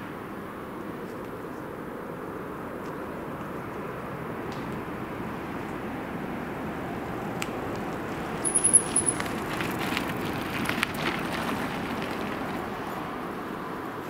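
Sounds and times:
distant motorway traffic: 0.0s - 14.0s
bicycle tyres crunching on gravel: 7.7s - 13.3s
bicycle clicks and rattles: 7.9s - 12.6s.

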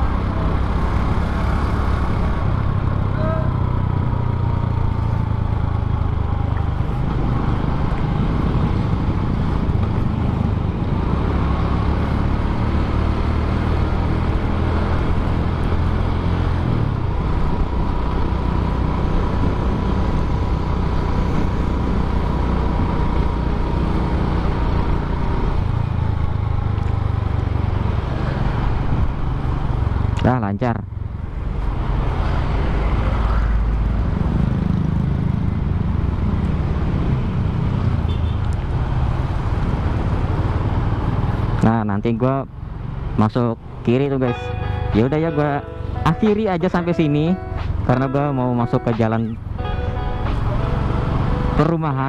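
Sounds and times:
traffic: 0.0s - 52.0s
motorcycle engine running: 0.1s - 13.2s.

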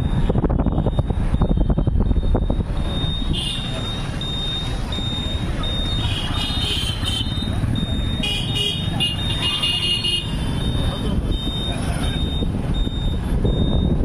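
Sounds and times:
wind buffeting microphone: 0.0s - 3.3s, 12.2s - 14.0s
vehicle engine rumble: 0.0s - 14.0s
vehicle warning beeper: 0.0s - 14.0s.

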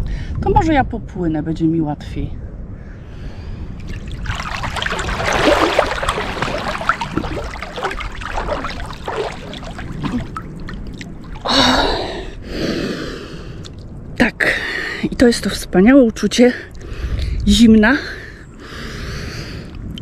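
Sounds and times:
water splashing and sloshing: 3.6s - 12.5s.

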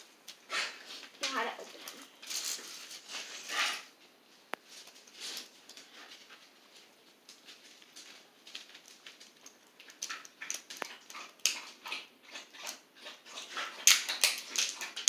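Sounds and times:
plastic wrapping crinkling: 1.2s - 3.5s, 4.7s - 10.8s.

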